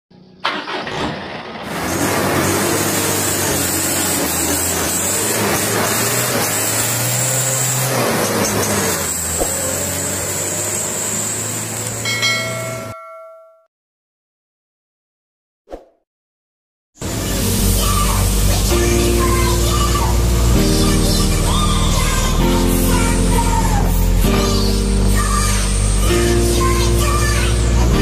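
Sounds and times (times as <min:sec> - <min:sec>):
vehicle engine drone: 0:00.1 - 0:13.0, 0:17.0 - 0:28.0
bell chime: 0:12.0 - 0:13.7.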